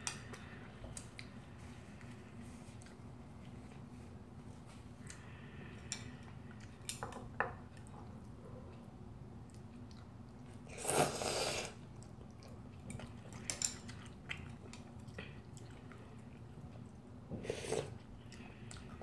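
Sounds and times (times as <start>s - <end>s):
chewing: 9.4s - 19.0s
person slurping noodles: 10.7s - 11.8s, 17.4s - 18.0s.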